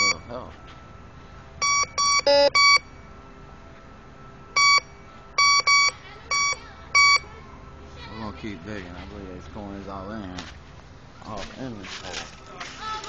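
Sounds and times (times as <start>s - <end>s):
low-pitched detector tone: 0.0s - 0.4s, 1.6s - 3.2s, 4.5s - 7.3s
metal detector beeps: 0.0s - 0.4s, 1.6s - 3.0s, 4.6s - 7.3s.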